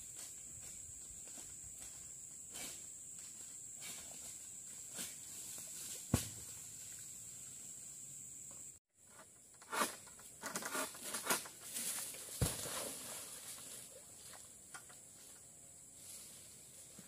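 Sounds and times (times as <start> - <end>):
rustling of palm fronds: 9.7 - 17.0.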